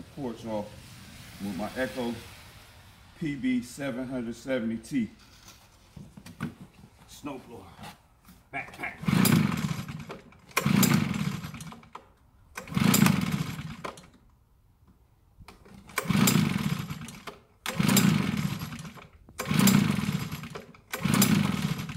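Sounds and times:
leaf blower engine turning over: 0:08.6 - 0:14.2, 0:15.5 - 0:21.9
recoil starter pulls: 0:08.6 - 0:14.4, 0:15.4 - 0:21.9.

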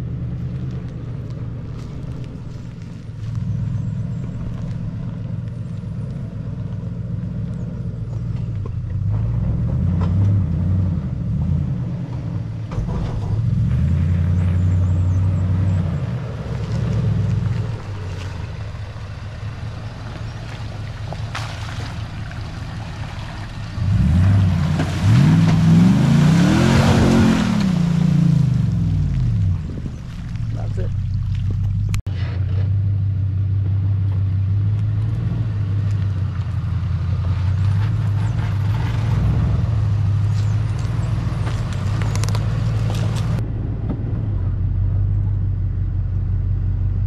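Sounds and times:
vehicle engine rumble: 0:00.0 - 0:47.0.

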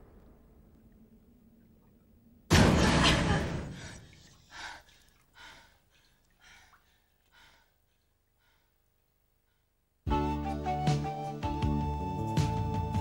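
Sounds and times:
loud hit: 0:02.5 - 0:03.9.

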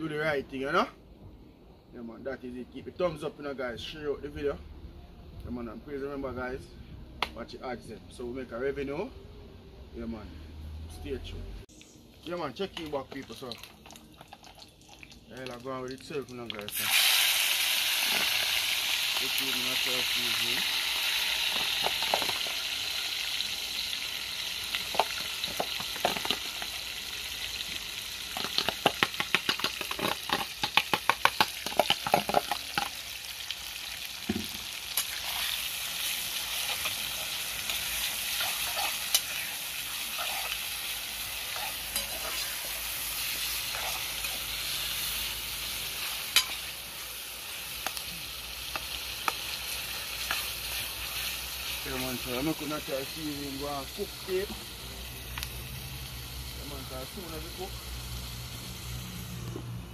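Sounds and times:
vegetables sizzling in hot oil: 0:11.7 - 0:59.9
metal spoon scraping a pot: 0:38.3 - 0:39.4, 0:40.1 - 0:40.7, 0:41.5 - 0:42.8, 0:43.6 - 0:44.5.

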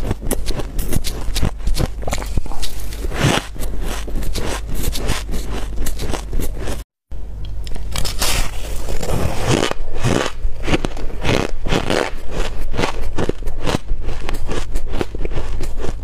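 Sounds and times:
shaved ice crunching: 0:07.9 - 0:15.9.

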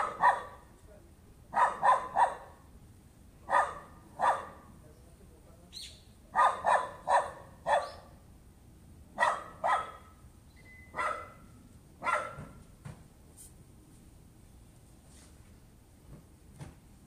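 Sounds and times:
dog barking: 0:00.0 - 0:00.7, 0:01.5 - 0:02.6, 0:03.4 - 0:04.7, 0:06.3 - 0:08.1, 0:09.2 - 0:10.2, 0:10.9 - 0:12.6.

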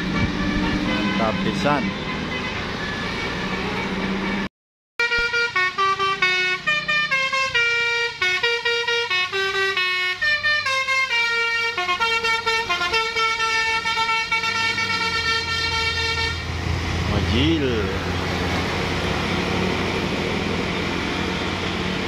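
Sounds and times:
bus musical horn melody: 0:00.0 - 0:16.6.

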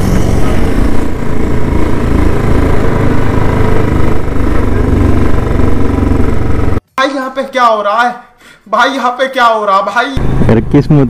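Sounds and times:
motorcycle engine running: 0:00.0 - 0:06.8.

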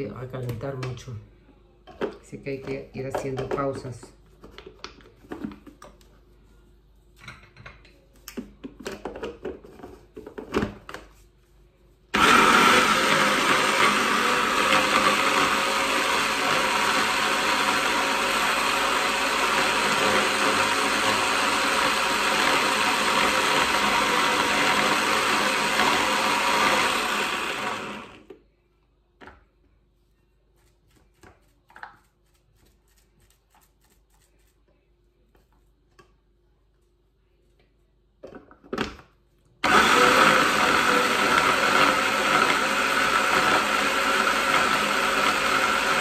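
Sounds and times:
stick blender motor chopping: 0:12.2 - 0:28.2, 0:39.6 - 0:46.0.

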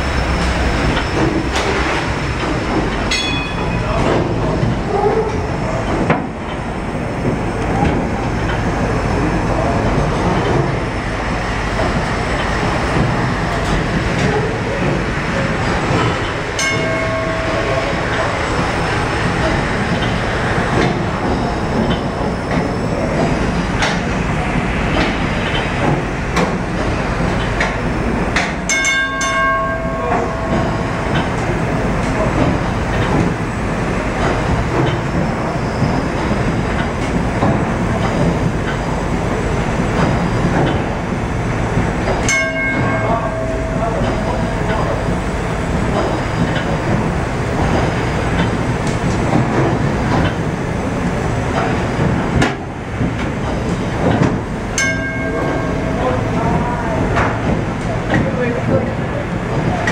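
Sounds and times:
paddle wheel churning water: 0:00.0 - 0:59.9
bell-like ring: 0:03.1 - 0:04.0, 0:16.6 - 0:18.3, 0:28.7 - 0:30.8, 0:42.3 - 0:45.2, 0:54.8 - 0:56.5.

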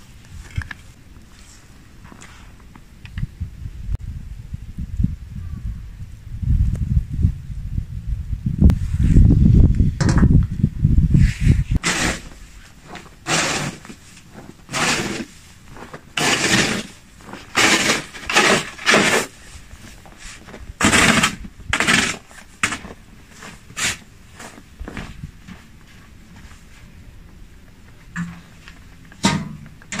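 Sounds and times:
snow shovel scraping paving: 0:11.8 - 0:24.6.

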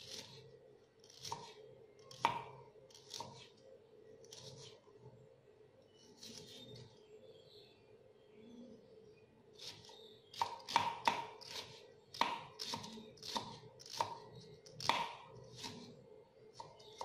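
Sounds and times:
knife chopping on wooden board: 0:01.1 - 0:01.5, 0:02.1 - 0:02.5, 0:10.4 - 0:14.2, 0:14.8 - 0:15.8.

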